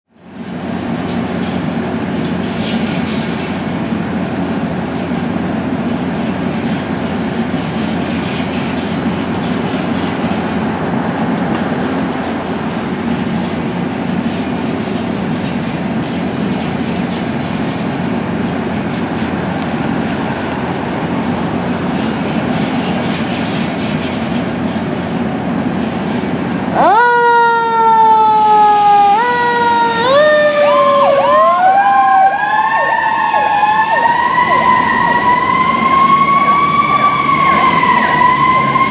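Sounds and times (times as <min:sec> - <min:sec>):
diesel truck engine running: 0:00.2 - 0:27.0
electronic siren: 0:26.7 - 0:38.9.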